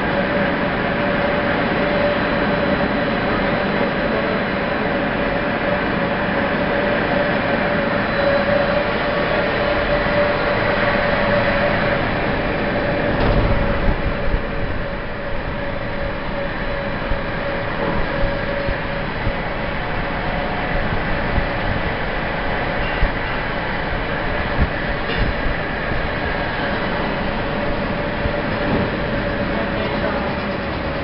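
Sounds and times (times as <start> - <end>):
rope making machine running: 0.0 - 31.0
low bump: 11.9 - 16.1.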